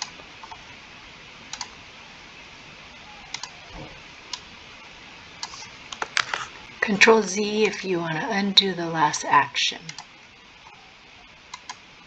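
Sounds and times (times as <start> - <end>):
low hiss: 0.0 - 12.0
computer mouse clicks: 1.5 - 1.7, 3.3 - 3.6, 11.5 - 11.8.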